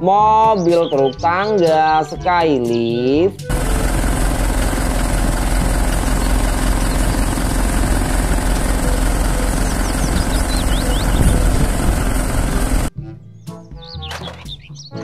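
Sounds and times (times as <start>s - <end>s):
engine running: 3.5s - 12.9s
hydraulics hum: 3.5s - 12.9s.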